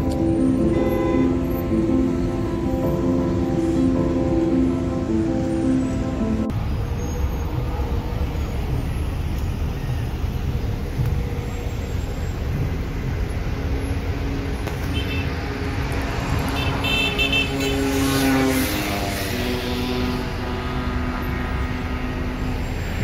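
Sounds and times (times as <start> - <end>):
road traffic rumble: 0.0 - 23.0
car horn toots: 0.6 - 1.5, 16.5 - 17.9.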